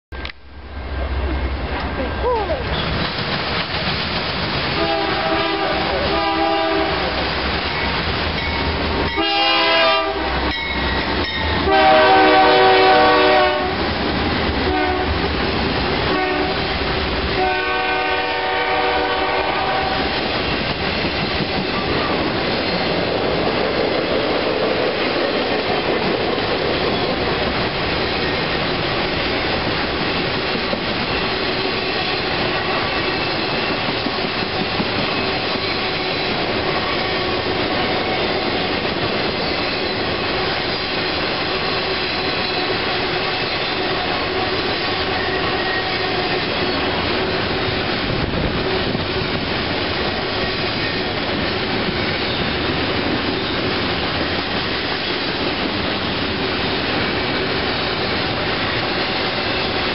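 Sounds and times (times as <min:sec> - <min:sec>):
train wheels clattering: 0:02.7 - 0:59.9
train horn blasts: 0:04.7 - 0:07.2, 0:09.1 - 0:10.6, 0:11.6 - 0:13.8, 0:14.6 - 0:15.2, 0:16.0 - 0:20.2, 0:31.7 - 0:34.2, 0:41.5 - 0:49.0.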